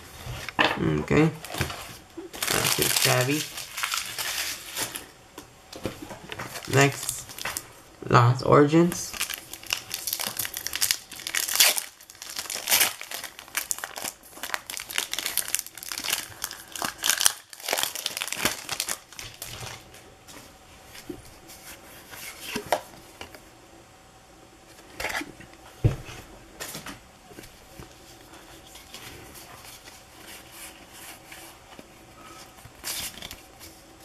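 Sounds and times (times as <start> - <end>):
foil wrapper crinkling and tearing: 2.3 - 5.1, 6.5 - 7.6, 9.1 - 19.8.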